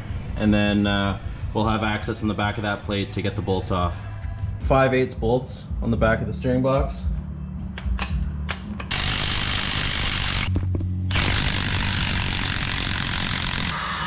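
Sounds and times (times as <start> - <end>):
power tool whirring: 8.8 - 14.0.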